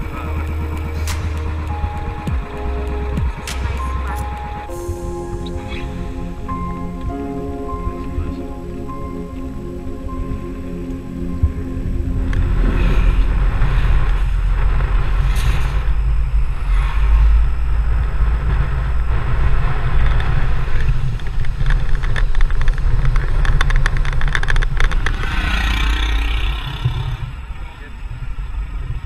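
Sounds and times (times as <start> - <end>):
vehicle engine and road noise: 10.5 - 29.0
crackles and rattles: 11.4 - 29.0.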